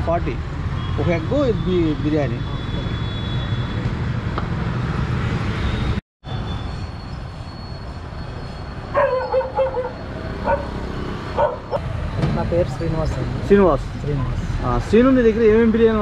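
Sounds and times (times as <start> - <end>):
road traffic rumble: 0.0 - 16.0
dog yelping and whining: 8.9 - 10.7.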